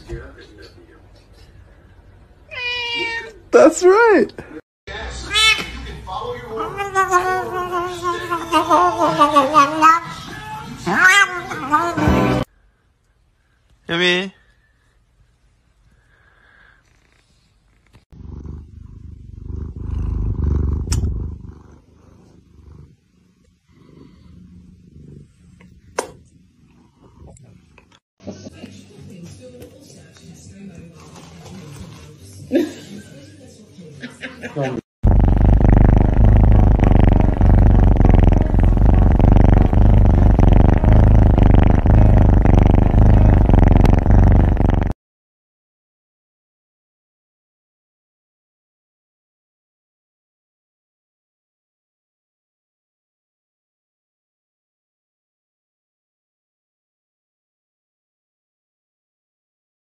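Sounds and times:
cat purring: 16.6 - 27.8, 35.0 - 45.0.

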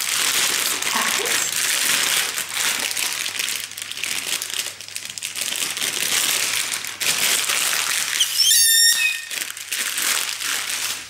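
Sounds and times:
plastic bag crinkling: 0.0 - 11.0
high-pitched squeal: 8.2 - 9.5.

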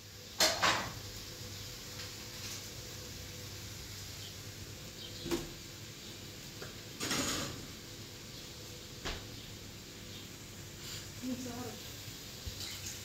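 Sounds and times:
kitchenware clatter: 0.4 - 1.0, 7.0 - 7.8, 12.5 - 13.0
kitchenware knock: 0.4 - 1.0.

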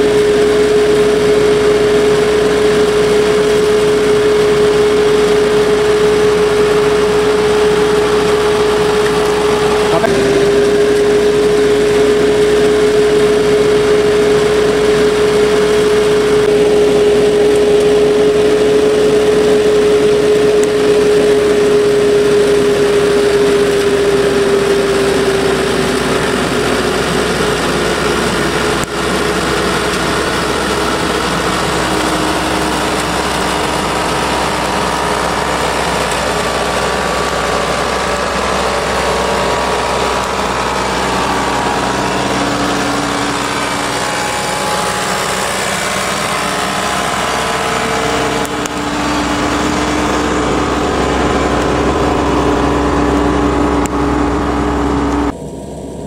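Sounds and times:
trimmer head cutting branches: 0.0 - 55.2
steady high whine: 0.0 - 56.0
tractor engine running: 0.0 - 56.0.

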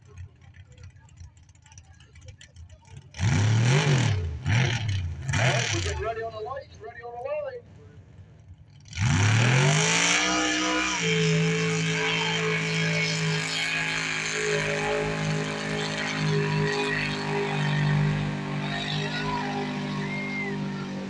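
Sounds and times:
truck engine revving hard: 3.1 - 6.3, 8.8 - 21.0.

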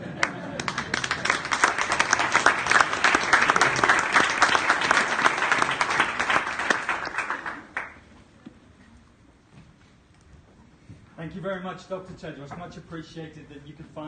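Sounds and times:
audience applauding: 0.0 - 8.1.

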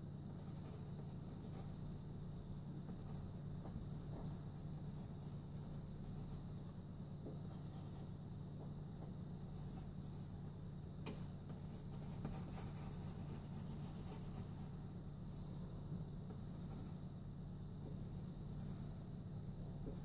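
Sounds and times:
steady low hum: 0.0 - 20.0
pencil scratching on paper: 0.3 - 1.9, 2.8 - 6.8, 7.4 - 8.2, 9.4 - 10.5, 11.4 - 14.8, 16.3 - 17.1, 18.0 - 19.2.

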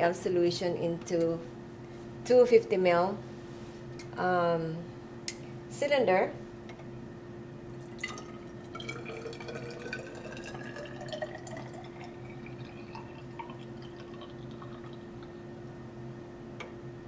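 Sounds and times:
steady low hum: 0.0 - 17.0
liquid pouring into glass cylinder: 7.8 - 15.4.

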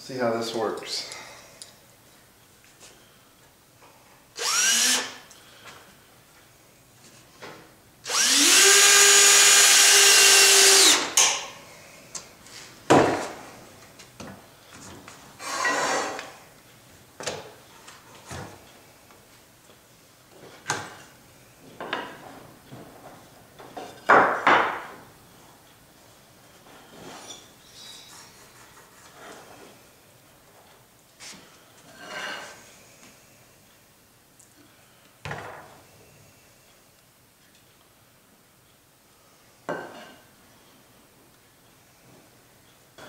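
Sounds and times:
cordless drill driving screw: 4.4 - 5.2, 8.1 - 11.2.

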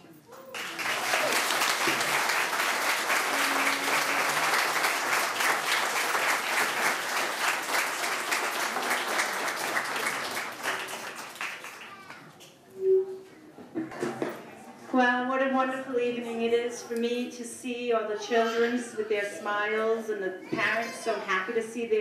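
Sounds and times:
audience applauding: 0.5 - 12.3.

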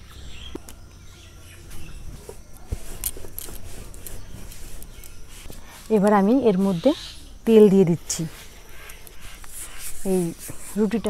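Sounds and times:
birds chirping faintly: 0.0 - 11.0.

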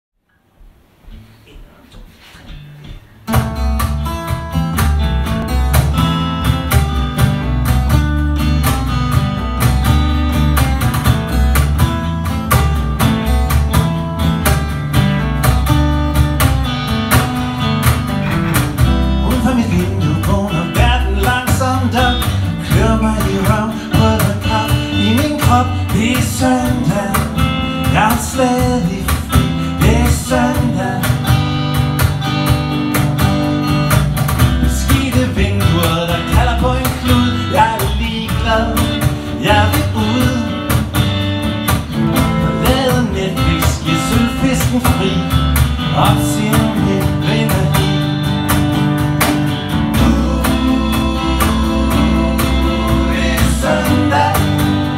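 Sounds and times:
cajon beat: 0.6 - 54.9
acoustic guitars strummed: 2.5 - 54.9.

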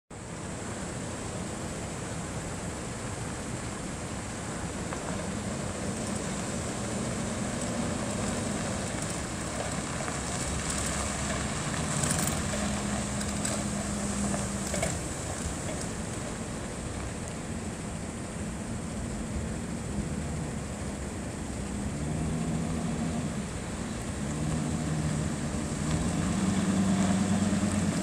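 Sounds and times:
steady rushing noise: 0.1 - 28.0
truck engine driving past: 5.1 - 16.4, 19.8 - 28.0.

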